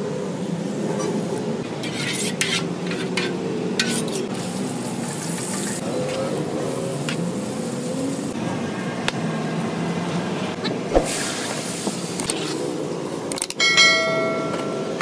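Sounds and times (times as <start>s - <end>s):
ladle scraping metal pot: 1.8s - 4.3s
onions sizzling in oil: 3.8s - 8.4s.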